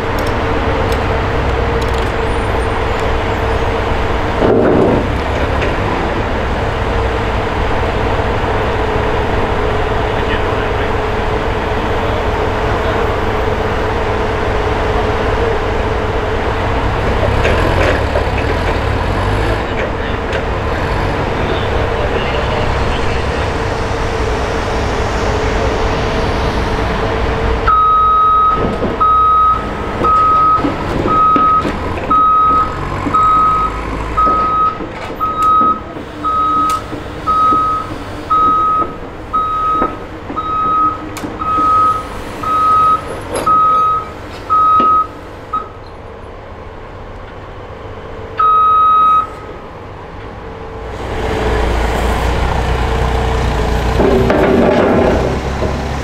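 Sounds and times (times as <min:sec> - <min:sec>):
heavy equipment engines running: 0:00.0 - 0:56.0
backup alarm beeping: 0:27.7 - 0:45.8, 0:48.4 - 0:49.5.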